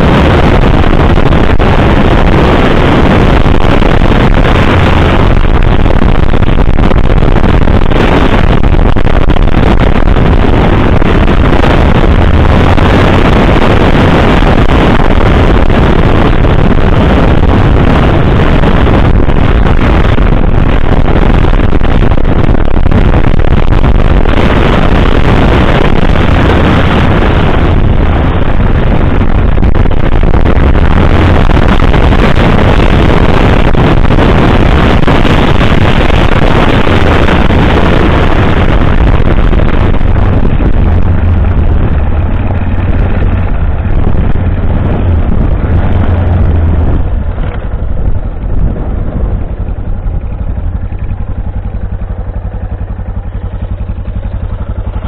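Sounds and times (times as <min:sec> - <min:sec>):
motorcycle engine running: 0:00.0 - 0:55.0
wind buffeting microphone: 0:00.0 - 0:55.0.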